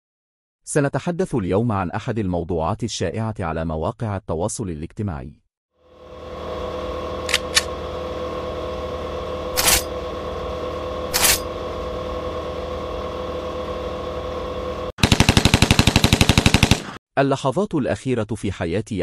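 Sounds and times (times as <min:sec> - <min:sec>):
electronic drone: 0:05.8 - 0:14.9
rapid automatic gunfire shots: 0:15.0 - 0:17.0.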